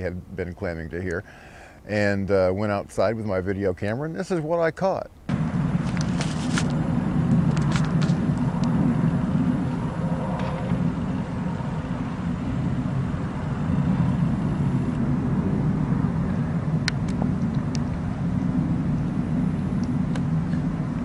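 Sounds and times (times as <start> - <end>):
low roaring rumble from sky: 5.2 - 21.0.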